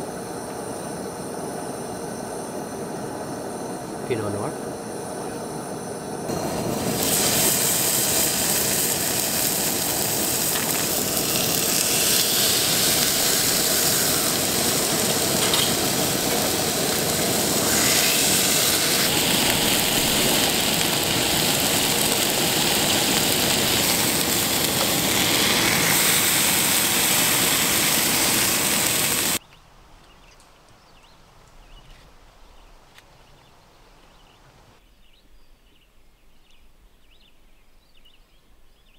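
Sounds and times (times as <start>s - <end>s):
steaks sizzling in a pan: 6.3s - 29.4s.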